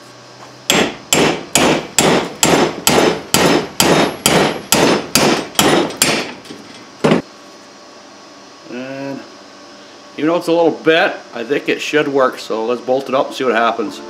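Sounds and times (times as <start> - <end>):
hammer striking sheet steel: 0.7 - 6.4.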